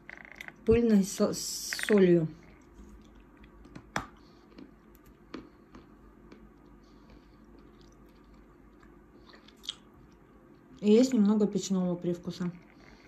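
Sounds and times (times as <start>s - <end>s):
chewing crunches: 2.5s - 10.3s.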